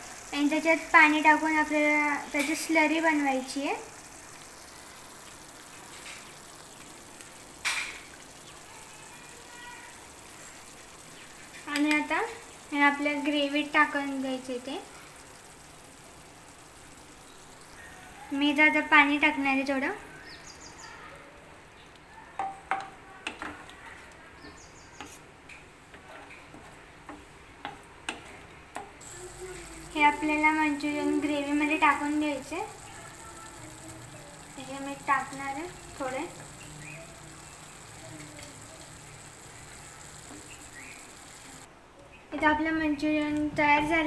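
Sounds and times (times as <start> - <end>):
gravy sizzling in pan: 0.0 - 21.0, 29.0 - 41.7
background hiss: 0.0 - 22.2, 27.2 - 44.0.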